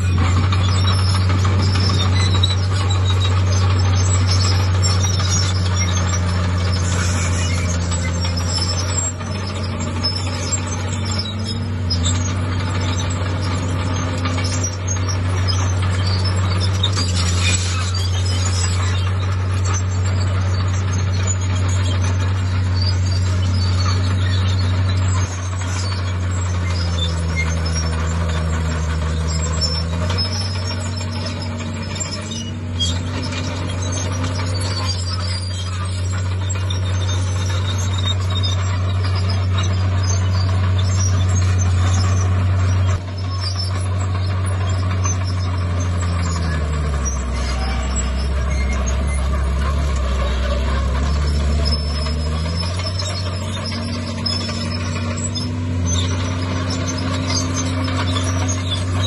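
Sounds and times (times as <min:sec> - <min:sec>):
heavy diesel machinery droning: 0:00.0 - 0:59.0.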